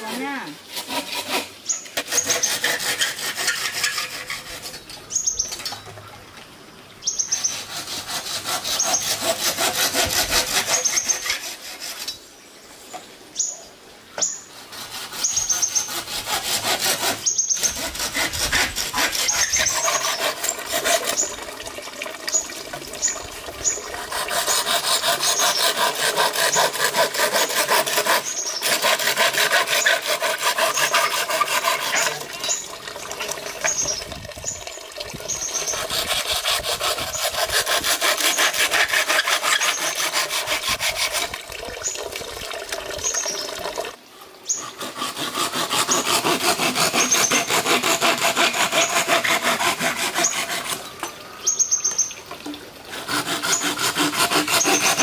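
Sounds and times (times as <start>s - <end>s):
hand saw cutting bamboo: 0.0s - 5.6s, 7.4s - 12.3s, 14.5s - 21.4s, 23.0s - 34.0s, 35.3s - 41.5s, 44.5s - 51.2s, 52.9s - 55.0s.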